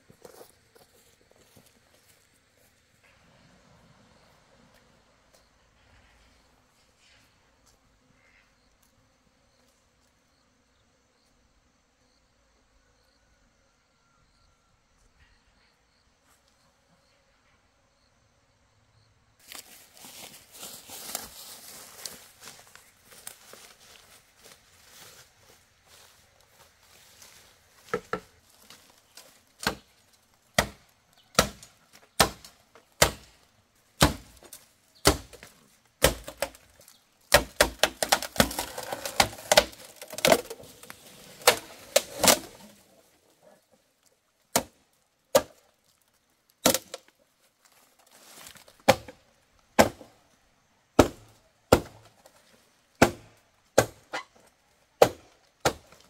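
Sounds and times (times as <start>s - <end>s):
blade chopping wood: 29.6s - 29.9s, 30.6s - 33.3s, 34.0s - 34.4s, 35.0s - 36.6s, 37.3s - 40.6s, 48.8s - 49.2s, 49.8s - 50.1s, 51.0s - 52.1s, 53.0s - 54.2s, 55.0s - 56.0s.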